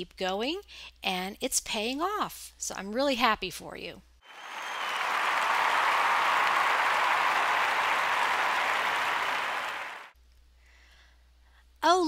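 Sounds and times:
crowd applause: 0:04.3 - 0:10.1.

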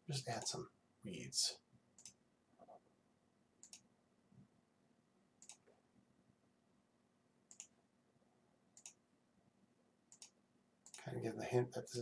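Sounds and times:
faint low hum: 0:00.0 - 0:12.0
computer mouse clicks: 0:02.0 - 0:02.8, 0:03.6 - 0:03.9, 0:05.4 - 0:05.8, 0:07.5 - 0:07.8, 0:08.8 - 0:09.0, 0:10.1 - 0:11.1.

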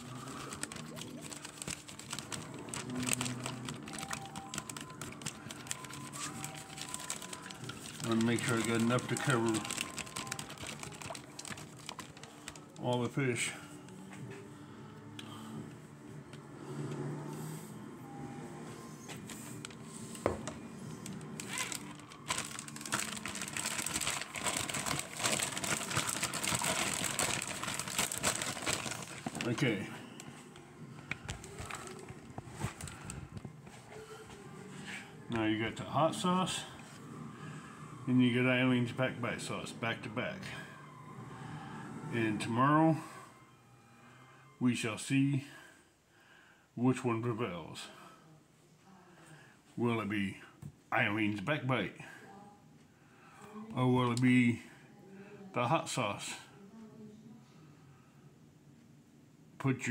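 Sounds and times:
plastic bag crinkling: 0:00.0 - 0:12.9, 0:20.9 - 0:30.4, 0:31.2 - 0:33.4.

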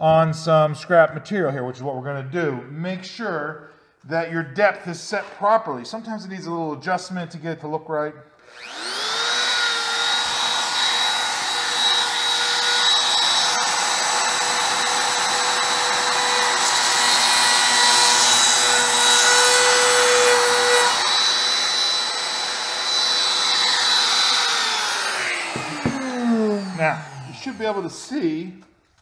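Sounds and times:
router cutting foam board: 0:08.4 - 0:28.2
trim router whining: 0:08.4 - 0:28.4.

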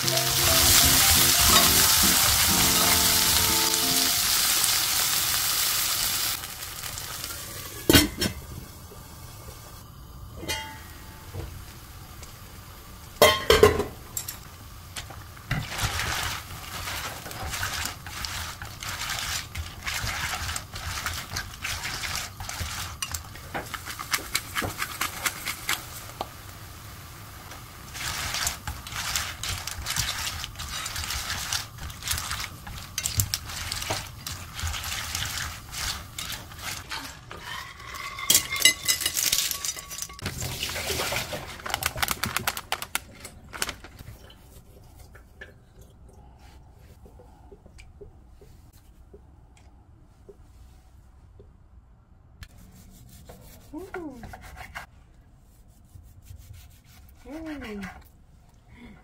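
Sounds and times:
steady high tone: 0:00.0 - 0:04.5
utensils scraping pan and plate: 0:28.0 - 0:40.2.

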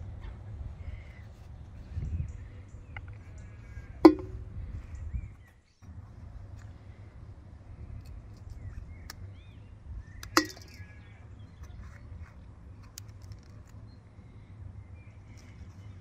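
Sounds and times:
steady low rumble: 0:00.0 - 0:16.0
birds chirping: 0:00.7 - 0:16.0
pepper clanking in enamel basin: 0:10.2 - 0:10.8.

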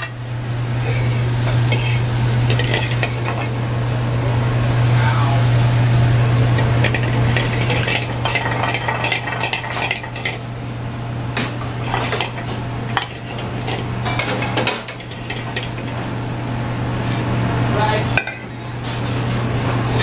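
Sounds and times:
metal pans clanking and scraping: 0:01.5 - 0:03.5, 0:06.6 - 0:10.4, 0:11.4 - 0:16.0.

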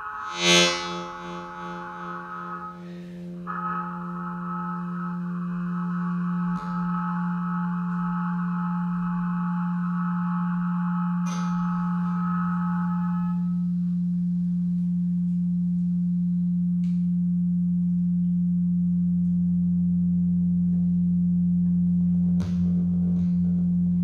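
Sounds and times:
muted trumpet tones: 0:00.0 - 0:13.6
low electronic drone: 0:00.0 - 0:24.0.

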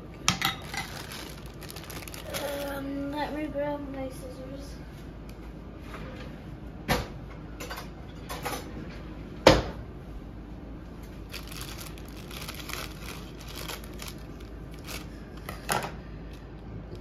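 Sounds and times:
plastic bag crinkling: 0:00.6 - 0:03.0, 0:11.1 - 0:15.6.

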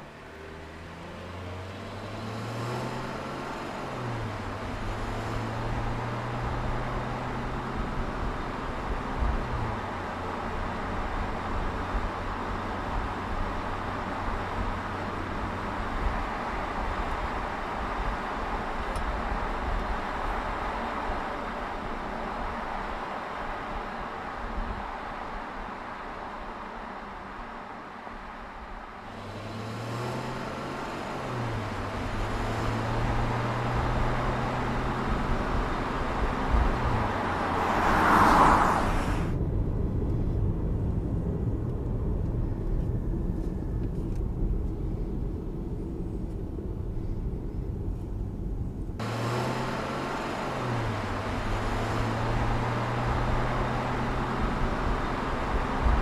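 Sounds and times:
car engine drone: 0:00.0 - 0:56.0
road noise: 0:00.0 - 0:56.0
car passing whoosh: 0:29.0 - 0:41.1.

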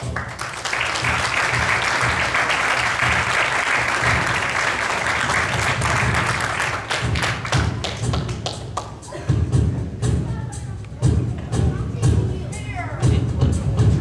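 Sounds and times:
audience applauding: 0:00.0 - 0:09.0.

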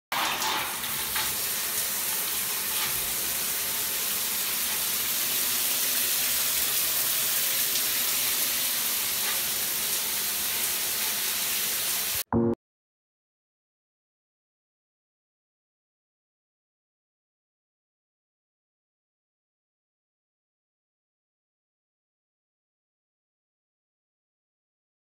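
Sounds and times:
shower water on tiles: 0:00.1 - 0:12.3.

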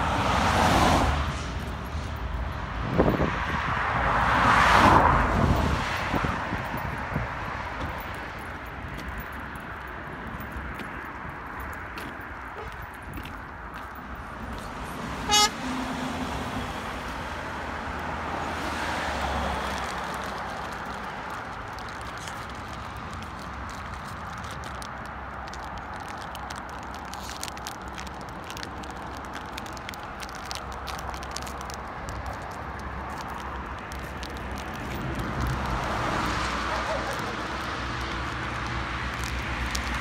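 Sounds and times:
vehicle passing: 0:00.0 - 0:24.5, 0:31.4 - 0:40.0
roadside traffic noise: 0:00.0 - 0:40.0
vehicle horn toot: 0:15.2 - 0:15.6.

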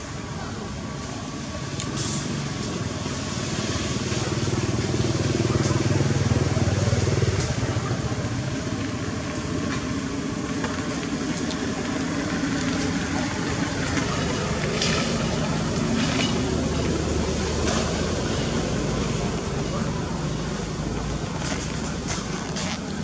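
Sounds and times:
engine humming: 0:00.0 - 0:23.0.

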